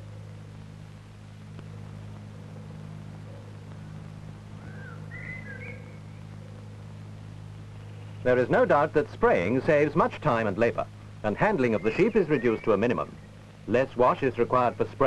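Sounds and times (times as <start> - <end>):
low film soundtrack hum: 0.0 - 15.0
faint high bird chirps: 4.6 - 6.2, 11.6 - 13.4.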